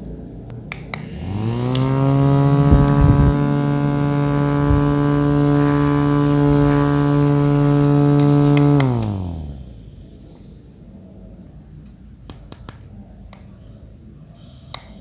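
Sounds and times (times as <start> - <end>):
small electric motor humming: 0.9 - 10.8.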